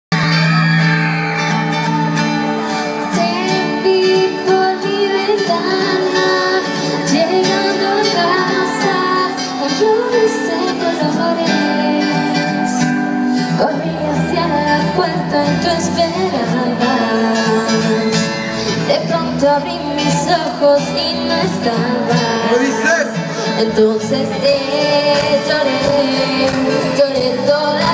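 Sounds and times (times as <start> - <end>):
live band playing: 0.1 - 27.9
woman singing: 2.7 - 22.6, 23.3 - 27.9.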